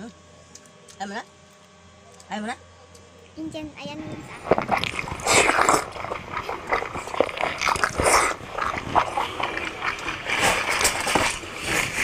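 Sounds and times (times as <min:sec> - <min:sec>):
wet chewing and lip-smacking: 0:04.4 - 0:12.0.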